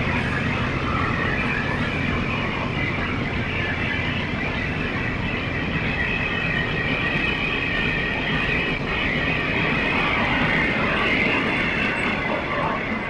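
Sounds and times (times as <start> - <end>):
high steady squeal: 0.0 - 13.0
train wheels rumbling on rail: 0.0 - 13.0.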